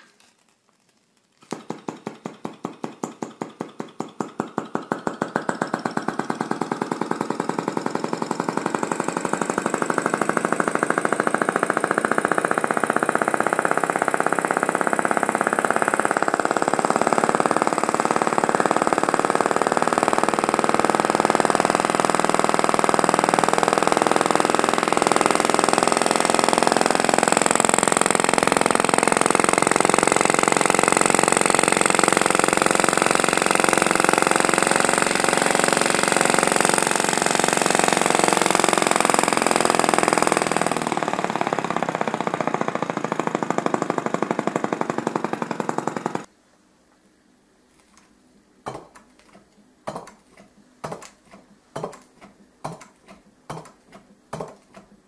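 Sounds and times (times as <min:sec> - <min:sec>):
miniature engine rapid chatter: 0:03.4 - 0:46.3.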